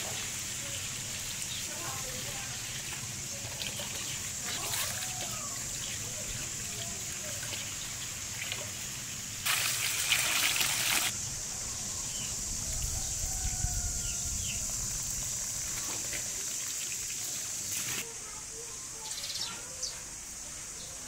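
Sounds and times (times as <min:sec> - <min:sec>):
water splashing: 0:00.0 - 0:11.1
hose water trickling into basin: 0:00.0 - 0:11.2, 0:12.7 - 0:18.1.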